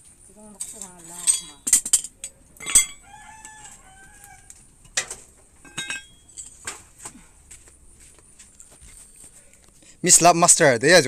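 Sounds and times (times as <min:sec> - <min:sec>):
metal tools clinking: 0:00.4 - 0:03.8, 0:04.8 - 0:06.8
rooster crowing: 0:02.9 - 0:04.7.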